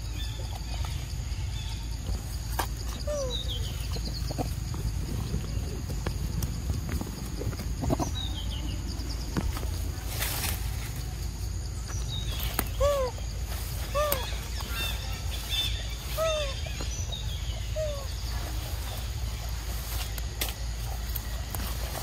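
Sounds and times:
young monkey whimpering coo calls: 2.8s - 4.7s, 12.6s - 18.6s.

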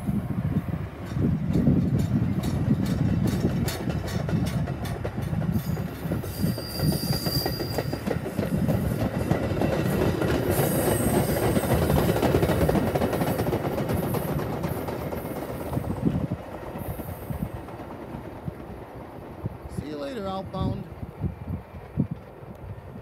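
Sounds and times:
train wheels rumbling on rails: 0.0s - 23.0s
clickety-clack over rail joints: 0.5s - 23.0s
high squeal of running gear: 5.6s - 8.1s.

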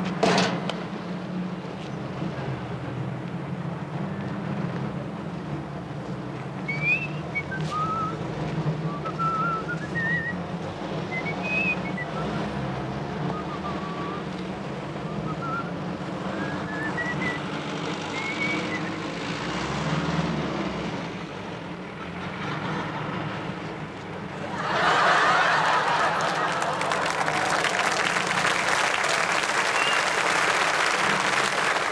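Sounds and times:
low rumble of street traffic: 0.0s - 31.9s
person whistling a tune: 6.7s - 8.2s, 8.8s - 10.4s, 11.1s - 12.3s, 13.2s - 14.3s, 15.0s - 17.4s, 18.2s - 18.9s, 29.7s - 30.2s.

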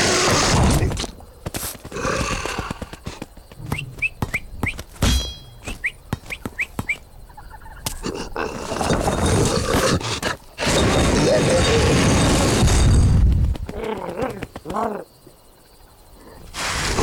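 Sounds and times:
boulder rumbling: 8.0s - 14.7s.

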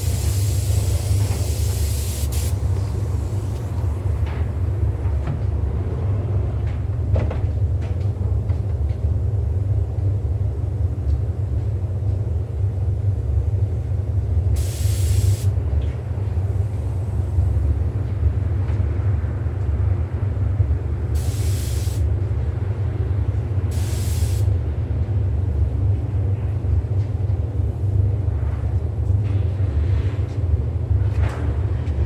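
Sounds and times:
paint spray gun air hisses: 0.0s - 3.6s, 14.6s - 15.6s, 21.2s - 22.1s, 23.7s - 24.5s
ventilation low rumble: 0.0s - 32.0s.

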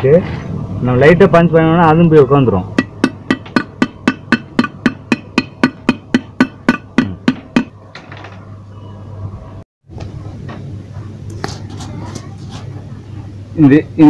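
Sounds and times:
cloth rubbing metal casing: 10.9s - 13.3s.

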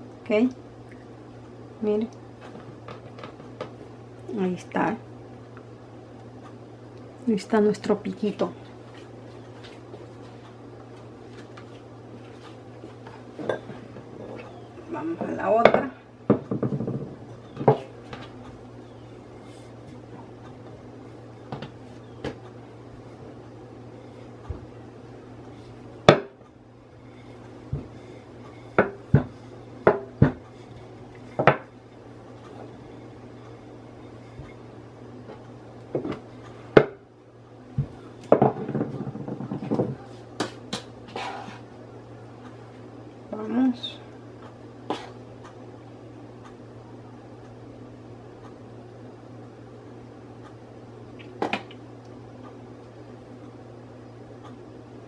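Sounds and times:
low steady hum: 0.0s - 55.0s
rolling pin rolling on stone: 15.2s - 18.4s, 27.0s - 36.9s, 37.8s - 40.1s
rolling pin knocking on countertop: 15.6s - 17.9s, 28.8s - 30.4s, 37.8s - 40.0s
rolling pin knocking on stone: 29.9s - 30.4s.

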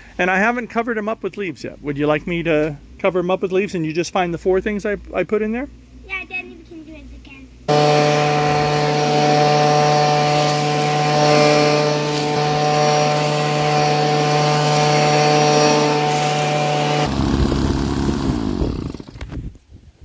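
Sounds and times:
leaf blower running: 7.7s - 19.4s.

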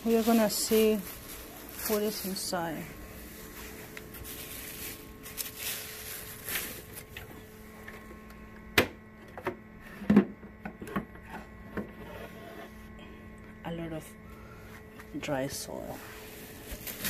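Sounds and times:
plastic bag rustling: 0.0s - 7.8s, 16.2s - 17.0s.

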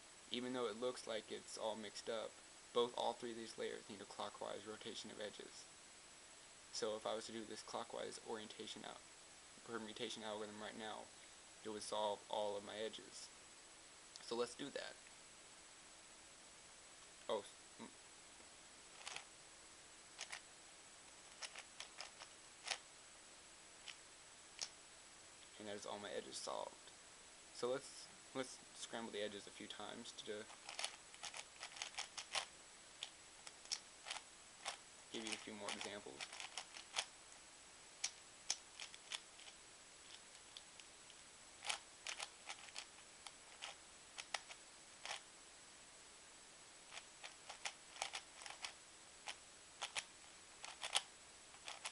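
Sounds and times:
puzzle cube clicking: 18.9s - 19.3s, 20.2s - 20.4s, 21.3s - 22.8s, 24.6s - 24.8s, 30.4s - 37.1s, 38.0s - 40.9s, 41.6s - 45.2s, 46.9s - 51.9s.

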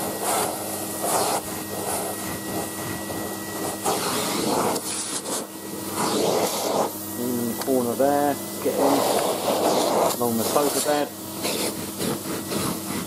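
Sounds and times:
vacuum cleaner motor whine: 0.0s - 13.0s
vacuum suction over carpet: 0.0s - 13.0s.

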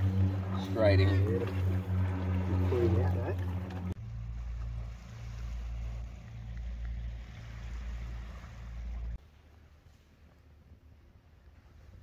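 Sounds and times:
boat motor running: 0.0s - 9.2s
water noise: 0.0s - 12.0s.

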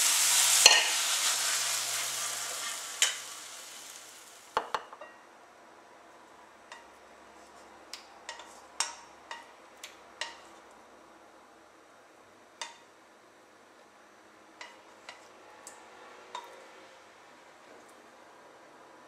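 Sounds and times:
rice sizzling in frying pan: 0.0s - 4.8s.

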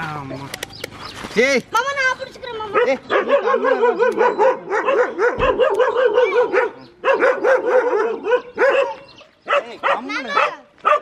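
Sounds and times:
dog barking excitedly: 2.7s - 11.0s.

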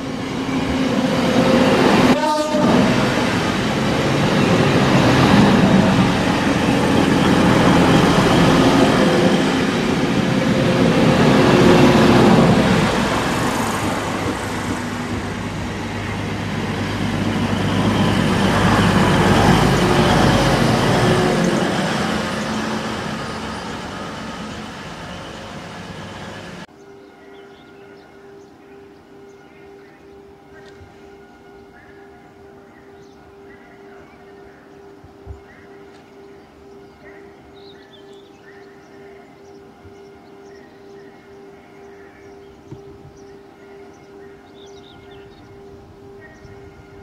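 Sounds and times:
wheel-on-rail rumble: 0.0s - 26.7s
diesel train engine droning: 0.0s - 47.0s.

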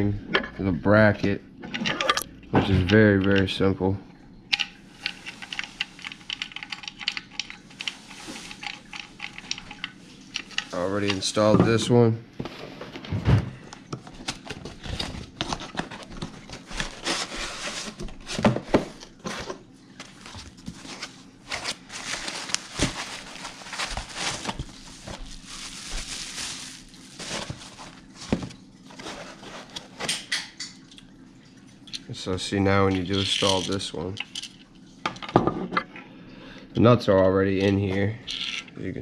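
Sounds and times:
cardboard box rustling: 14.1s - 30.0s.

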